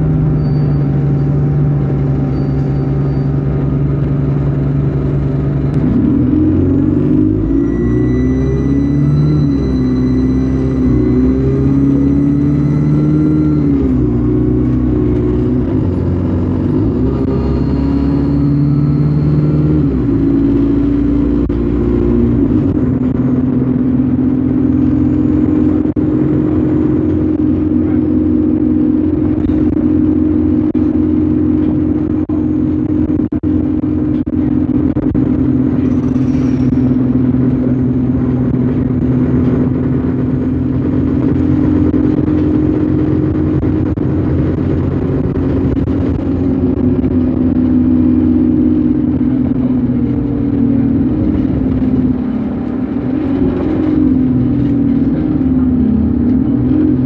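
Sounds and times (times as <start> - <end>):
bus diesel engine humming: 0.0 - 57.0.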